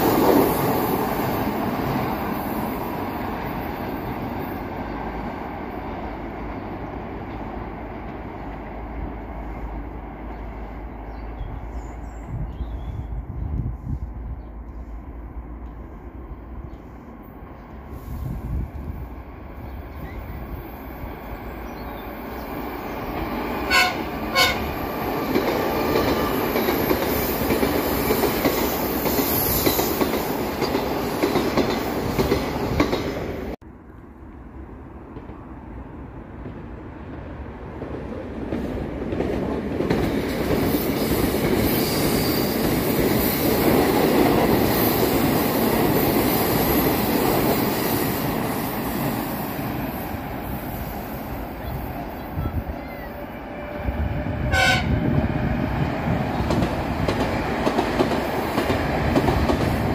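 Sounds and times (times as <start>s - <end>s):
train running past: 0.0s - 59.9s
train horn toots: 23.7s - 24.8s, 52.8s - 55.1s.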